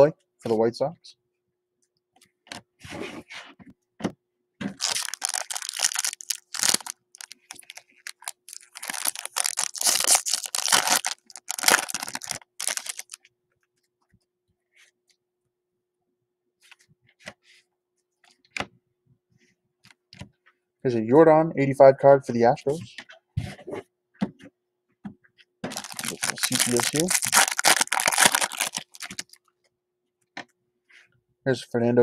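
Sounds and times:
foil wrapper tearing and crinkling: 0:04.8 - 0:13.2, 0:25.7 - 0:29.4.

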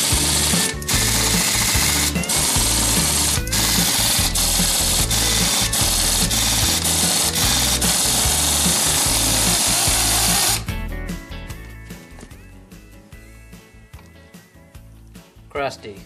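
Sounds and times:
pneumatic tool running on metal: 0:00.0 - 0:10.7
background music: 0:00.0 - 0:16.0.

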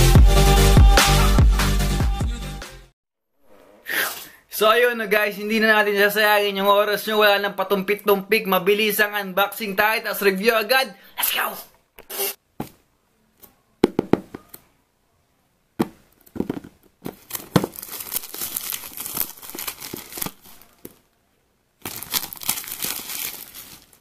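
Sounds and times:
plastic wrap crinkling: 0:16.3 - 0:21.1, 0:21.8 - 0:24.0.

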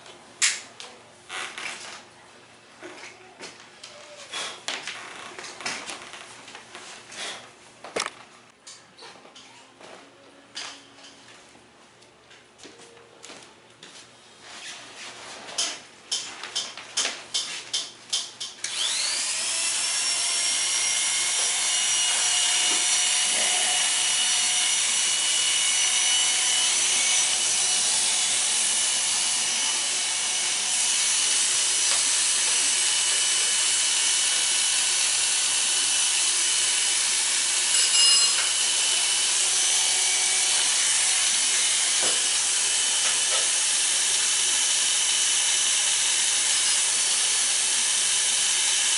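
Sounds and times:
electric hair clippers buzzing: 0:18.2 - 0:48.9.

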